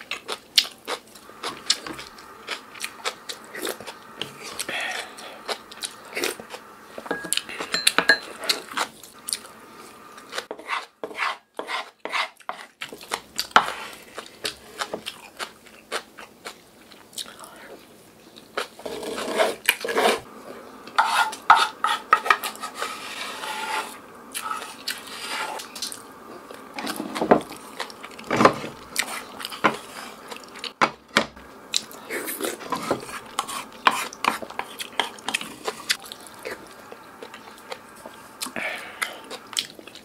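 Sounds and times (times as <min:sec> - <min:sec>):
spoon scraping a pot: 0:10.5 - 0:12.7, 0:18.8 - 0:20.3, 0:21.0 - 0:25.7, 0:32.4 - 0:35.8
chewing: 0:25.6 - 0:28.3, 0:33.2 - 0:40.0.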